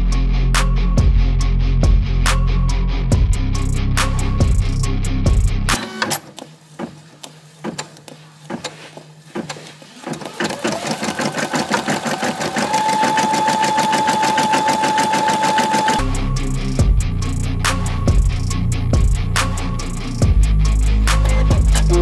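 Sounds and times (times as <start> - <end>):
embroidery machine stitching: 5.7 - 6.3, 9.4 - 16.0.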